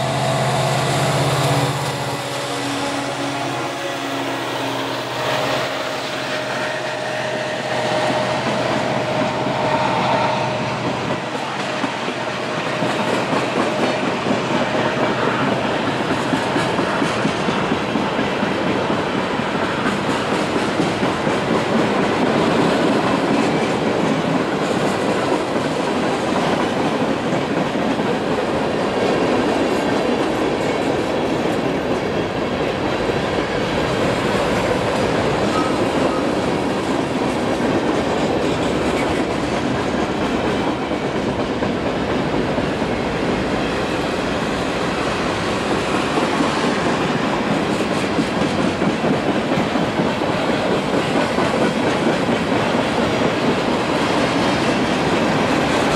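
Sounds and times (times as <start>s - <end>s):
steel wheels running on rails: 0.0s - 55.9s.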